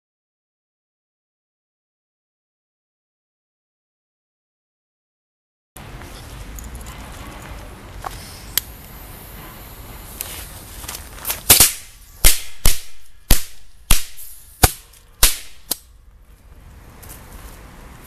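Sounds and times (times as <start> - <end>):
firecracker bangs: 11.5 - 15.8.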